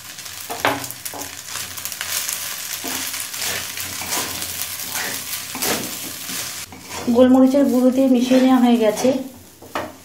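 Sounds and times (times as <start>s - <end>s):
pasta sizzling in hot oil: 0.0s - 10.0s
metal spatula scraping pan: 2.8s - 10.0s.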